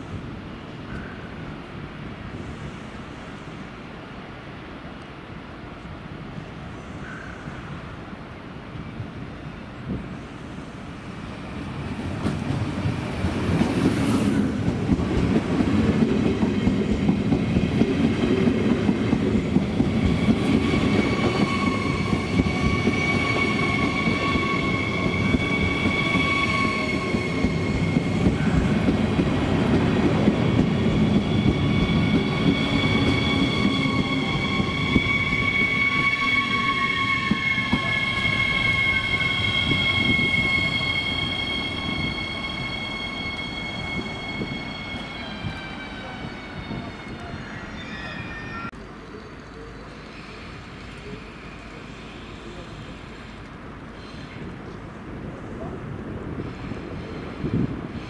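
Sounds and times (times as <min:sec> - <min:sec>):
high-pitched wheel squeal: 0:20.6 - 0:28.8, 0:30.4 - 0:53.4.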